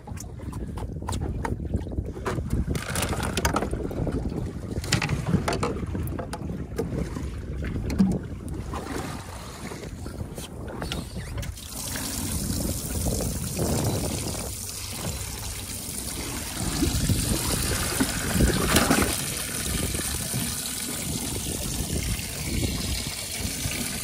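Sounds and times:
water trickling into tank: 0:10.9 - 0:24.0.

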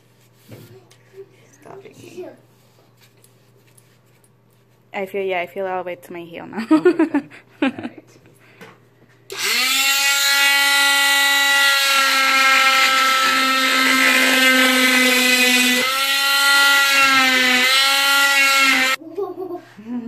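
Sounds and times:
cast saw whining: 0:09.3 - 0:19.0.

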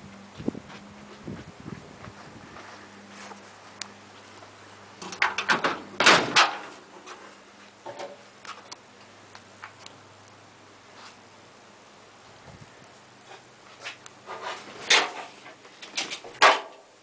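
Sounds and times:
metal car door clunk and rattle: 0:05.0 - 0:06.8.

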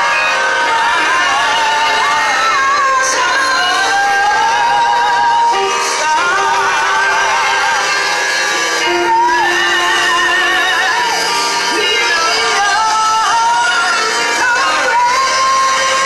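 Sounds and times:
voices singing with vibrato: 0:00.0 - 0:16.0.

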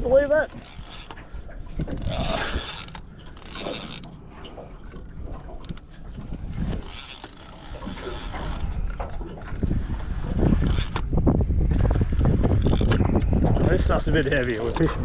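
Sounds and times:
wind rumble on microphone: 0:00.0 - 0:03.0, 0:03.7 - 0:15.0
fishing reel ticking and whirring: 0:00.1 - 0:01.2, 0:01.8 - 0:04.2, 0:06.6 - 0:08.8, 0:10.5 - 0:11.1, 0:11.7 - 0:14.9.

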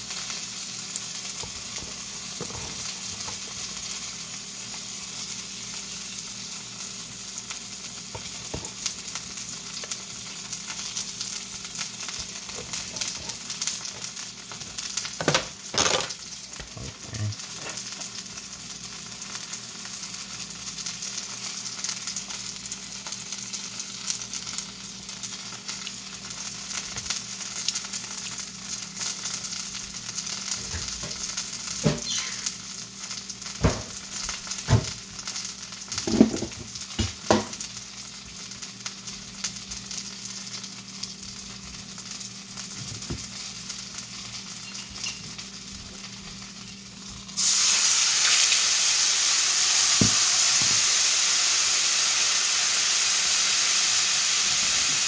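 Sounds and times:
food sizzling in a pan: 0:00.0 - 0:55.0
loud steady hiss: 0:47.4 - 0:55.0.

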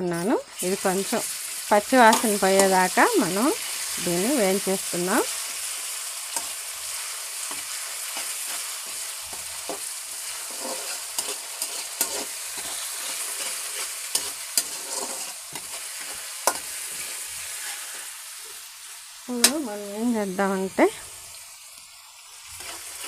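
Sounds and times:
onions sizzling in hot oil: 0:00.0 - 0:23.0
metal spatula scraping pan: 0:07.5 - 0:18.2.

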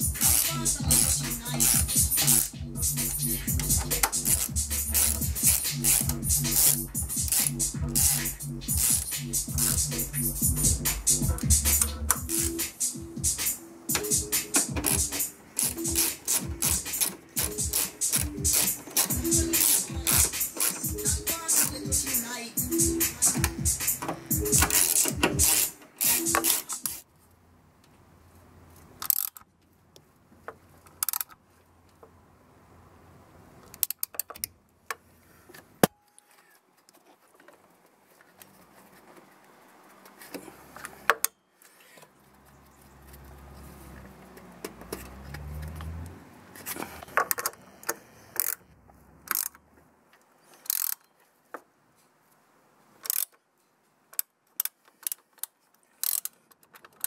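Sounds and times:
ratchet and socket clicking: 0:00.0 - 0:27.0, 0:29.0 - 0:29.5, 0:31.0 - 0:31.4, 0:33.6 - 0:34.5, 0:48.4 - 0:48.6, 0:49.3 - 0:49.6, 0:50.6 - 0:51.1, 0:53.0 - 0:53.4, 0:54.1 - 0:57.0.

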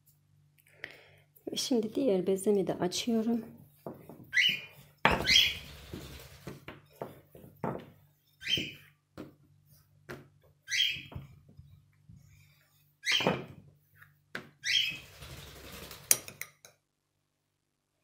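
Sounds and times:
rolling pin on paper worktop: 0:03.2 - 0:10.6.

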